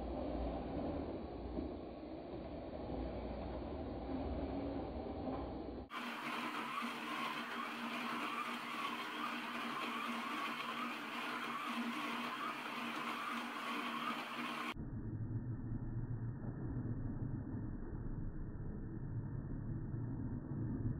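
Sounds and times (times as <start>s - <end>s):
slot car motors whirring: 0.1s - 14.8s.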